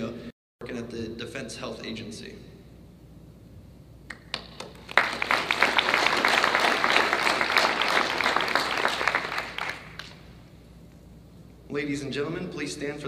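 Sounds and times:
audience applauding: 4.1 - 10.2.

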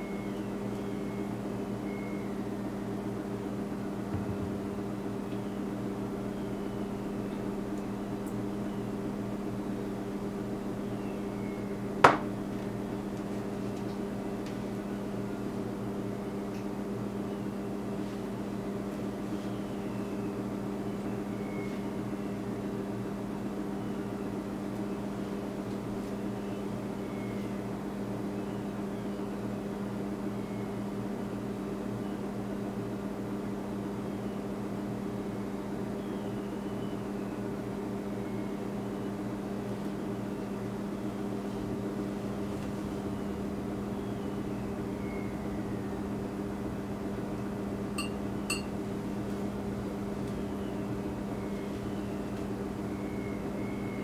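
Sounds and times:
low machine hum: 0.0 - 54.0.

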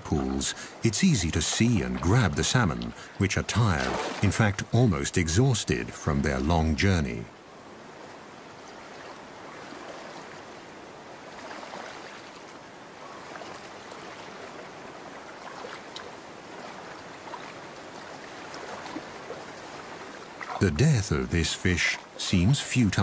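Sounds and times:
small water splashes: 0.0 - 4.9, 7.8 - 20.8
stream water running: 0.0 - 23.0.

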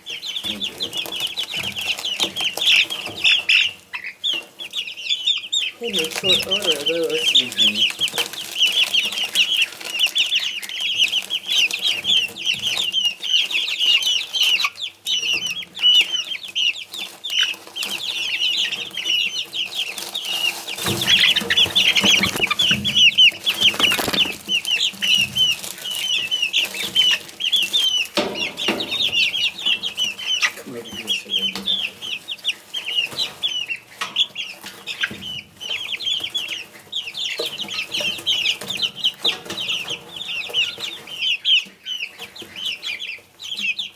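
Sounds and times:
chicks peeping: 0.0 - 43.9
scuffling in wood shavings: 5.7 - 14.8, 15.4 - 41.2.

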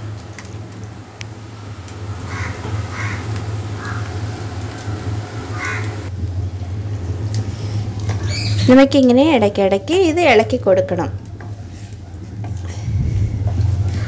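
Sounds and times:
steady low hum: 0.0 - 14.0
crows cawing: 2.2 - 4.3, 5.5 - 6.1.

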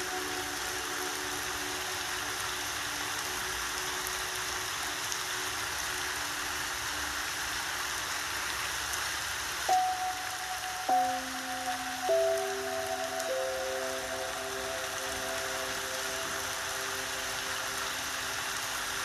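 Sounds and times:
steady rain: 0.0 - 19.0
soft piano notes: 9.7 - 18.8.

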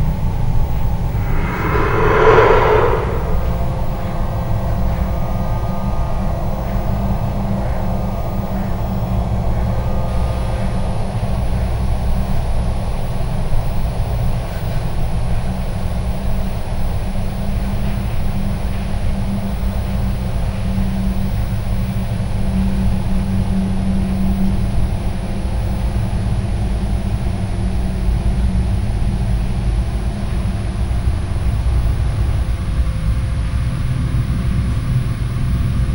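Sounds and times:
low rumbling drone: 1.0 - 4.5.

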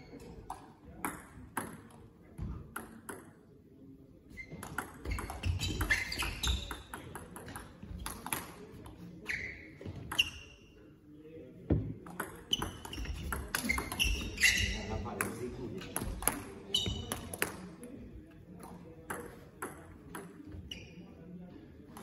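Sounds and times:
short high squeaks: 4.3 - 6.7, 12.6 - 14.9.

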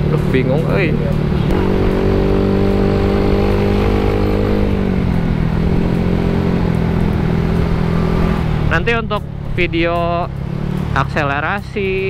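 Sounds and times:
scooter engine running: 0.0 - 9.5.

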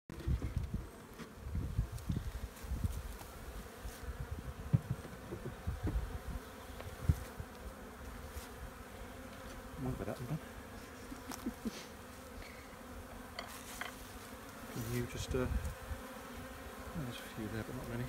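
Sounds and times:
honeybees buzzing: 0.1 - 18.0
dull thumps: 4.6 - 6.1.

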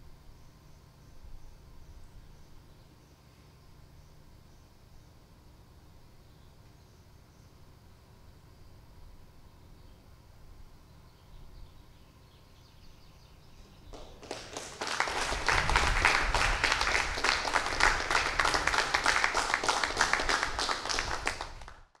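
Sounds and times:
people clapping: 13.9 - 22.0.

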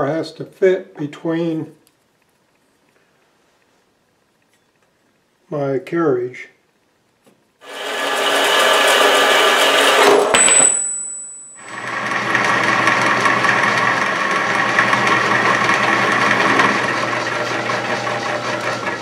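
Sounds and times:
bandsaw cutting steel: 7.6 - 10.3, 11.7 - 19.0
end mill cutting steel: 7.6 - 10.3, 11.6 - 19.0
milling machine humming: 11.6 - 19.0.

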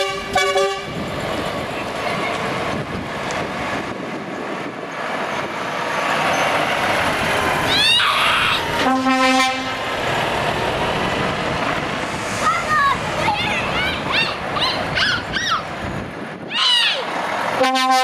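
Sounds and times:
truck horn blast: 0.0 - 0.9, 8.8 - 9.8, 17.6 - 18.0
truck driving past: 0.8 - 16.4.

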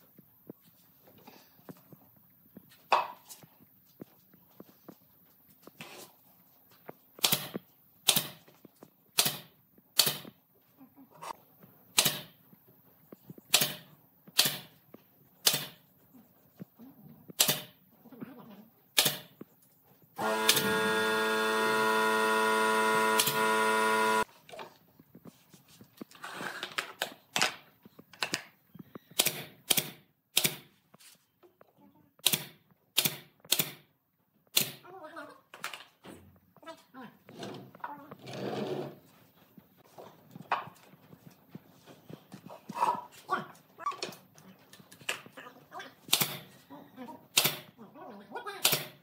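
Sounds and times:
nail gun firing into boards: 7.2 - 8.4, 9.2 - 10.3, 11.9 - 12.4, 13.5 - 14.8, 15.4 - 15.8, 17.4 - 17.8, 19.0 - 19.3, 29.2 - 30.7, 32.2 - 33.9, 34.5 - 34.8, 46.1 - 46.5, 47.3 - 47.7, 48.6 - 49.0.

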